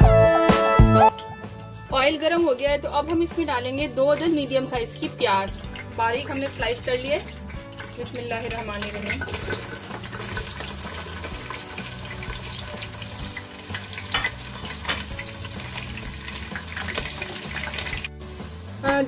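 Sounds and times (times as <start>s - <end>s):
onions sizzling in hot oil: 4.9s - 19.0s.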